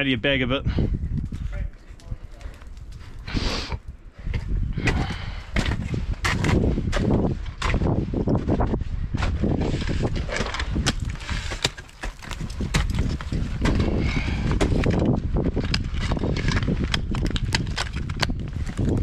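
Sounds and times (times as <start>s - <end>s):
ice tools striking ice: 10.3s - 13.8s.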